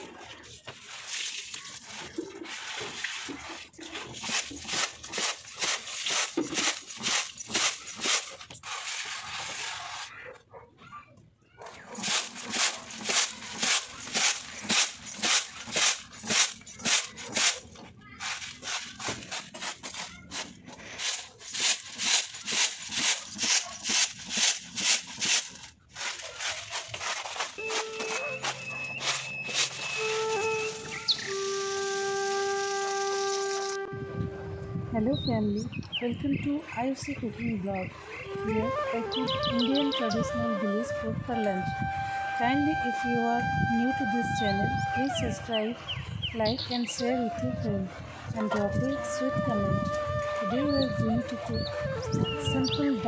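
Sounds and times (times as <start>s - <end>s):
rice swishing on winnowing tray: 0.5s - 10.2s
rice rattling on bamboo tray: 0.8s - 10.2s, 11.8s - 31.4s.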